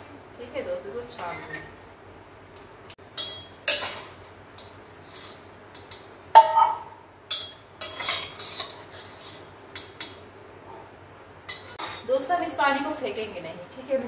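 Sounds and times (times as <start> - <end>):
steel pots and utensils clinking: 3.2 - 4.2, 5.8 - 10.1.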